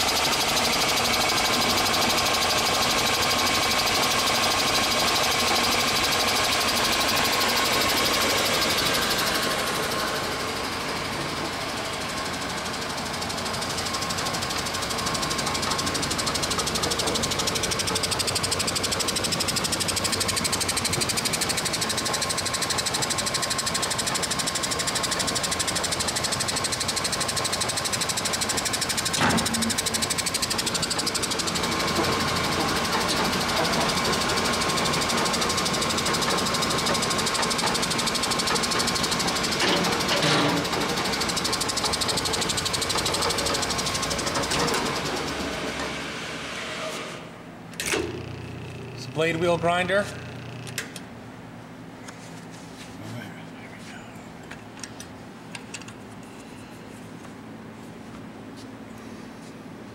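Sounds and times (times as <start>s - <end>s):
band saw running: 0.0s - 47.3s
clunks: 39.2s - 43.6s.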